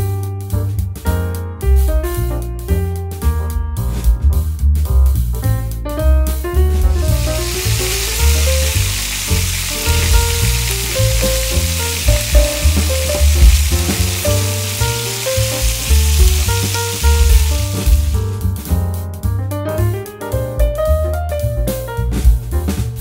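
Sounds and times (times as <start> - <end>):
background music: 0.0 - 23.0
fish sizzling in oil: 6.9 - 18.2.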